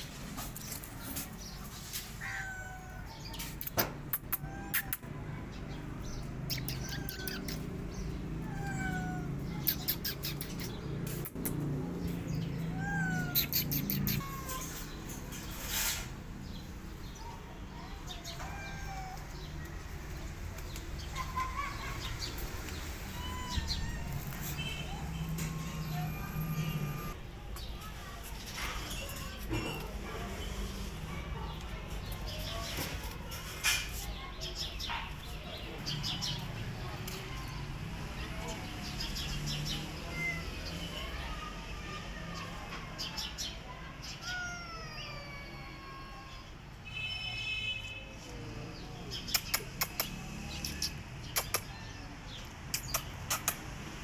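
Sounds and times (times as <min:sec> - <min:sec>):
small birds chirping: 0:00.0 - 0:45.5, 0:48.2 - 0:54.0
cats growling and yowling: 0:01.8 - 0:03.5, 0:06.3 - 0:10.3, 0:12.0 - 0:15.0, 0:18.1 - 0:19.5, 0:21.2 - 0:27.2, 0:39.8 - 0:40.8, 0:44.0 - 0:46.6.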